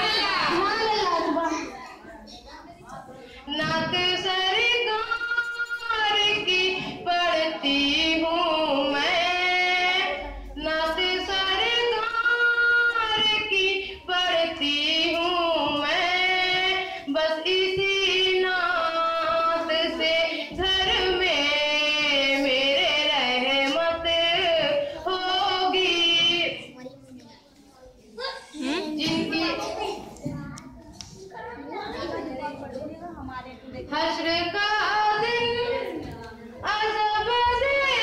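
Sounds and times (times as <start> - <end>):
girl singing into a microphone: 3.5 - 26.7, 33.9 - 38.0.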